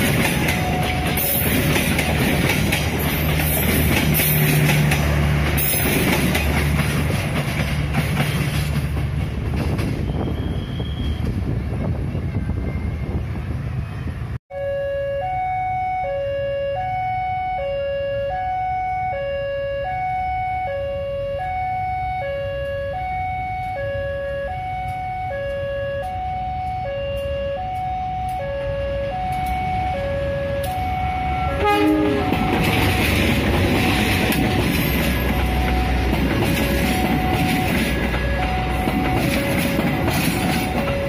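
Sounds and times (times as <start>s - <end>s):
two-tone crossing alarm: 0.0s - 4.5s, 14.5s - 41.0s
train rumble: 0.0s - 14.4s, 22.5s - 41.0s
diesel train noise: 0.0s - 41.0s.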